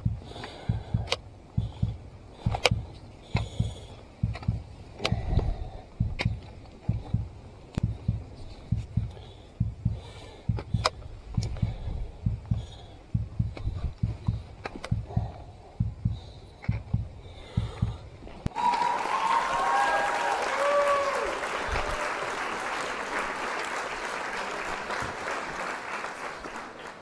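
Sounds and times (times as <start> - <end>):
steady rushing hiss: 0.0 - 18.5
trekking pole clicking on stone: 1.8 - 7.9.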